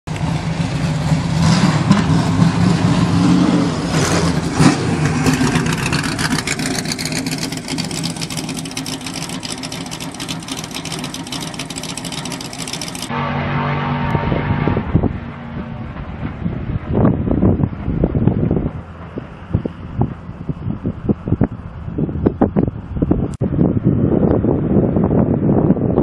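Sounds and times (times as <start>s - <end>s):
engine revving: 0.1s - 17.6s
car engine idling: 5.0s - 13.3s.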